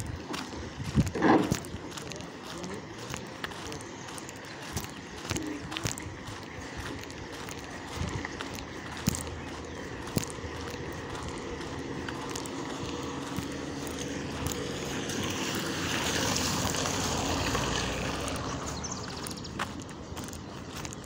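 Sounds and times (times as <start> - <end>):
car engine hum: 0.0 - 21.0
tyres hissing on wet road: 13.0 - 18.8.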